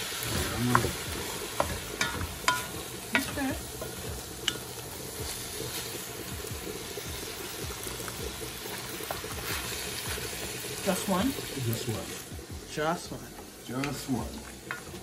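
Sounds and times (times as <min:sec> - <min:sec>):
meat sizzling in a pot: 0:00.0 - 0:15.0
spoon knocking against pot: 0:00.7 - 0:04.7.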